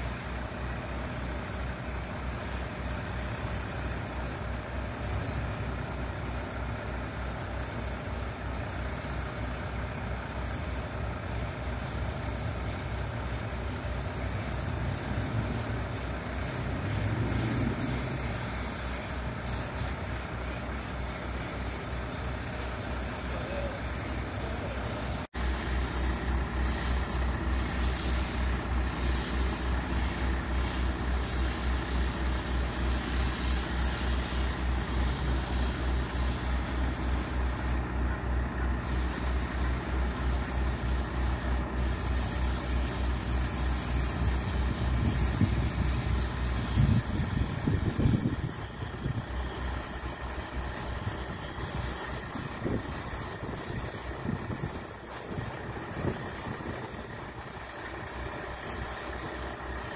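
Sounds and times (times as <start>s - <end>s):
large engine idling: 0.0s - 59.9s.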